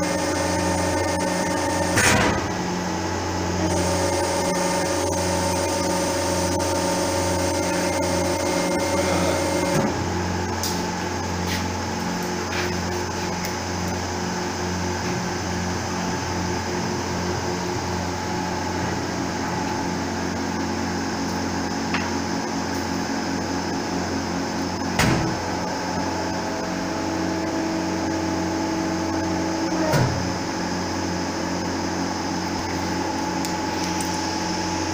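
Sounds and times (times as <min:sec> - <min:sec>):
high-pitched whine: 0:00.0 - 0:13.3, 0:23.7 - 0:34.9
hydraulic pump motor humming: 0:00.0 - 0:34.9.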